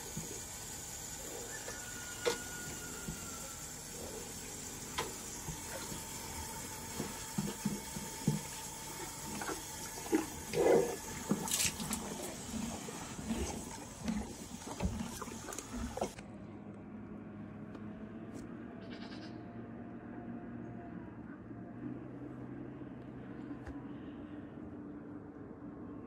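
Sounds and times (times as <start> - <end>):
horse slurping and gulping water: 0.0 - 16.2.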